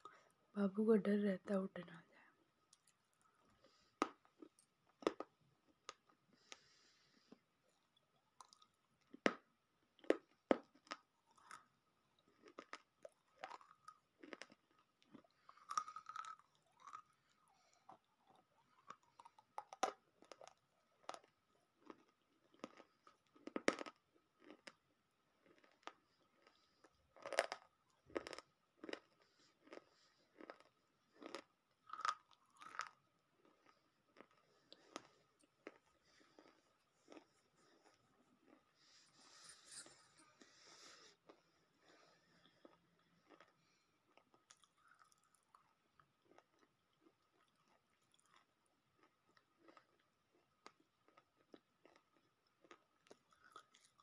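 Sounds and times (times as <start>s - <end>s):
chewing brittle earth: 2.7s - 39.0s, 41.2s - 54.0s.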